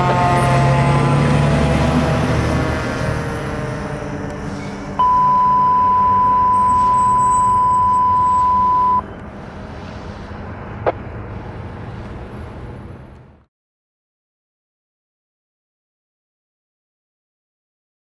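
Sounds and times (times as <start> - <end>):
fire engine driving away: 0.0 - 13.5
brief rising chirp: 5.0 - 9.2
steady pure beep tone: 5.0 - 9.2.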